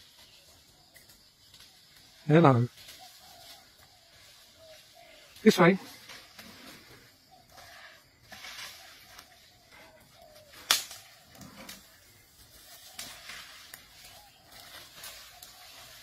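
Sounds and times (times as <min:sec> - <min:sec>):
leaves and brush rustling: 0:00.0 - 0:16.0
branches snapping: 0:10.5 - 0:11.9.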